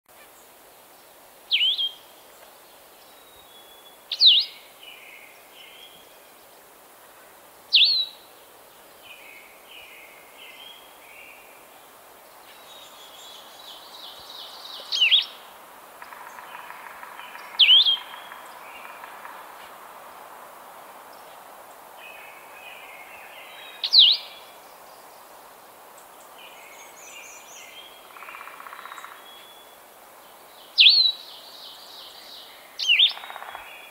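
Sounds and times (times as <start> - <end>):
faint background bird song: 0.1 - 20.0, 20.8 - 33.9
bird singing whistled phrases: 1.6 - 2.0, 7.8 - 8.1, 30.8 - 31.2.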